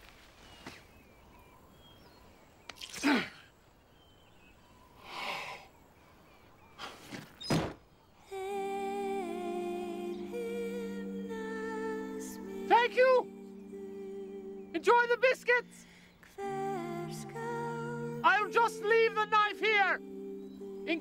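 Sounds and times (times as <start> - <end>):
soft music with held notes: 8.4 - 21.0.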